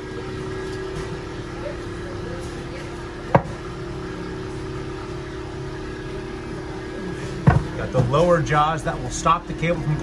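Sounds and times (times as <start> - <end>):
hydraulic machine droning: 0.0 - 10.0.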